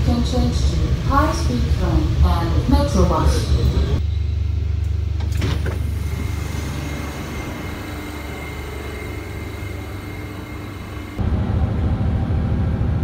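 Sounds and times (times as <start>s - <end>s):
faint high whine: 5.8s - 11.6s
vehicle rumble from inside: 11.2s - 13.0s.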